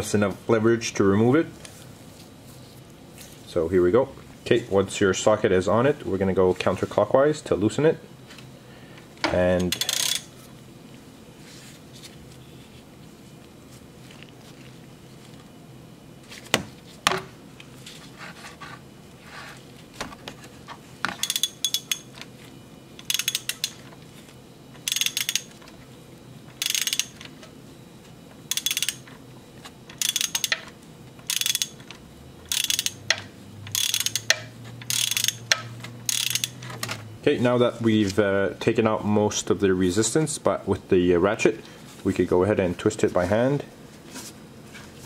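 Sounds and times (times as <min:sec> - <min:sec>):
ratchet clicking: 0:09.7 - 0:10.3, 0:21.2 - 0:22.1, 0:23.0 - 0:23.8, 0:24.8 - 0:25.5, 0:26.6 - 0:27.3, 0:28.5 - 0:29.1, 0:29.9 - 0:36.7.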